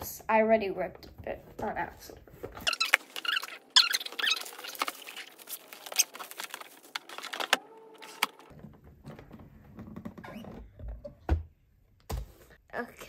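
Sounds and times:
box rustling: 2.6 - 8.5
shrink-wrap crinkling: 2.6 - 8.5.

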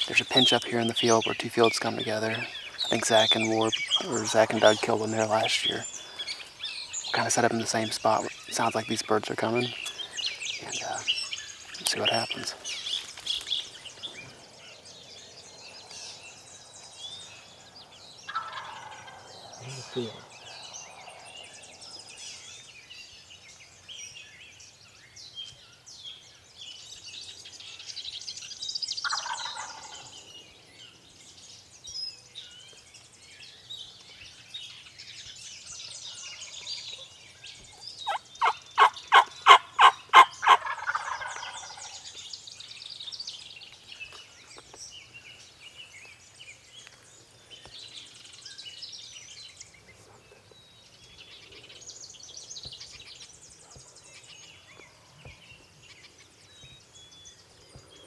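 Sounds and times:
songbirds chirping: 0.0 - 58.0
turkey gobbling: 18.3 - 19.3, 29.0 - 30.1, 38.1 - 42.0.

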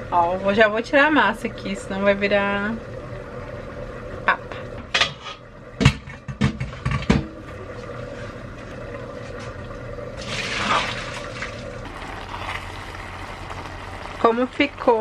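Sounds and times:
steel pot clanking: 4.9 - 7.4
water rushing into sink: 10.2 - 15.0.

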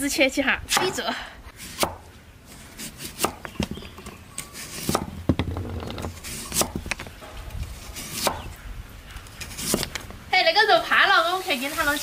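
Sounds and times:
knife chopping on a board: 1.7 - 2.0, 3.0 - 3.5.

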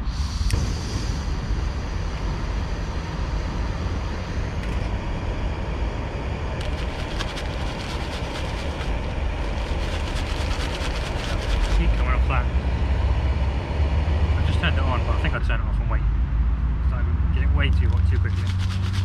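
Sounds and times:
gas stove hissing: 0.0 - 7.5
road traffic rumble: 0.0 - 19.0
plastic bag crinkling: 6.6 - 12.0, 17.9 - 19.0.

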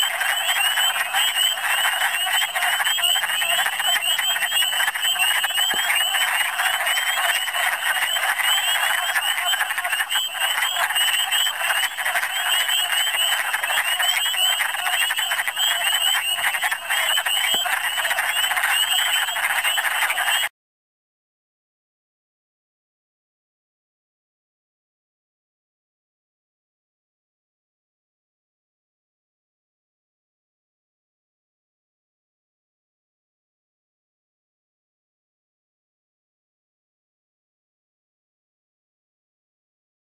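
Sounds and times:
wood frogs clucking chorus: 0.0 - 20.5.

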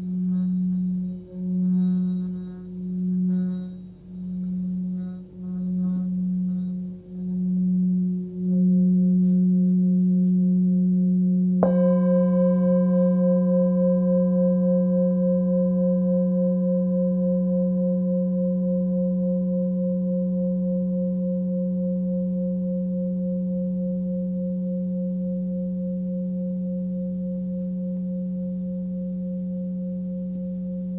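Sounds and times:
singing bowl humming: 0.0 - 30.9
singing bowl struck: 0.0 - 30.9.

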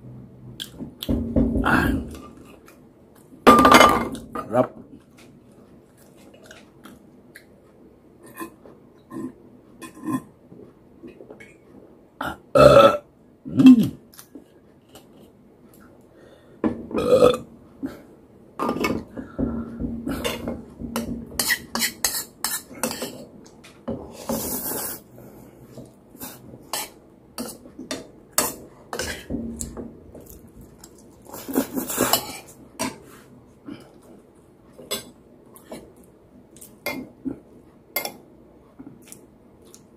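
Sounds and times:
loud burps: 12.2 - 14.0, 16.9 - 17.5
chewing and mouth noises: 38.9 - 39.9.

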